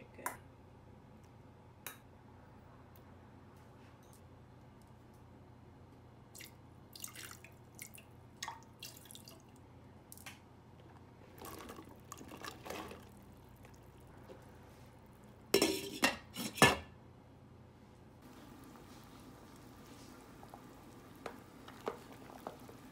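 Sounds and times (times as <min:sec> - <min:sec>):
glass lid clanking on metal pot: 0:15.6 - 0:16.8.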